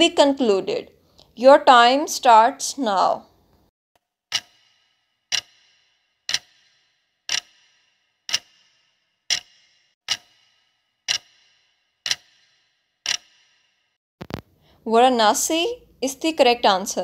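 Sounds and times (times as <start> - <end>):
clock ticking: 4.3 - 13.5.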